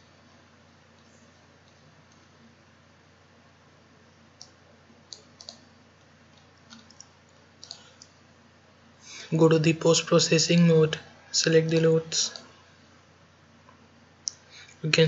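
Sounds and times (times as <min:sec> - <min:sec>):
low steady hiss: 0:00.0 - 0:15.0
computer mouse clicking: 0:01.0 - 0:02.4, 0:04.4 - 0:05.7, 0:06.3 - 0:08.2.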